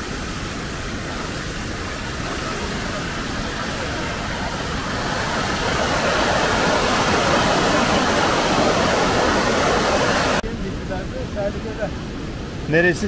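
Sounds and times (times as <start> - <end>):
stream rushing in torrent: 0.0 - 13.0.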